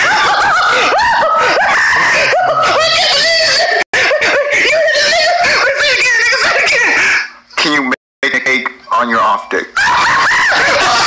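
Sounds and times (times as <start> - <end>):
high-pitched voice screaming: 2.6 - 3.8, 4.7 - 7.3.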